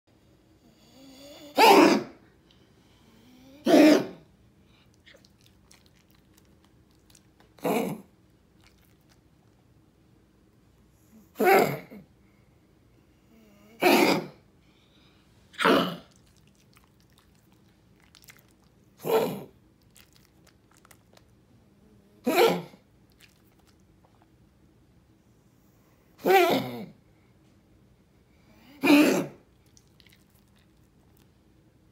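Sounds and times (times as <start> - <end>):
small dog coughing: 1.4 - 2.2, 3.6 - 4.2, 11.4 - 12.0, 13.8 - 14.4, 15.6 - 16.2, 22.2 - 22.8, 26.2 - 27.0, 28.7 - 29.4.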